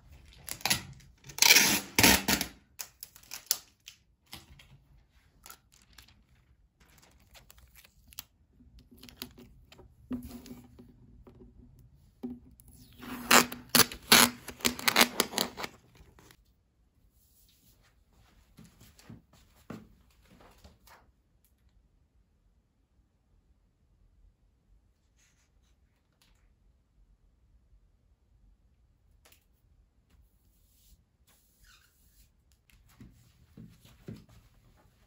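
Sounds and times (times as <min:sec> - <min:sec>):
plastic sheet crinkling: 0:02.8 - 0:10.6, 0:13.0 - 0:16.4
book pages rustling: 0:04.4 - 0:10.9, 0:13.0 - 0:16.4.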